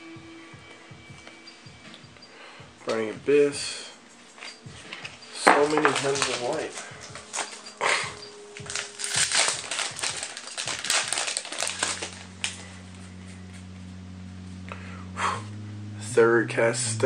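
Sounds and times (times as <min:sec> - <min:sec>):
steady low hum: 0:00.0 - 0:17.0
card packaging crinkling: 0:05.4 - 0:13.4.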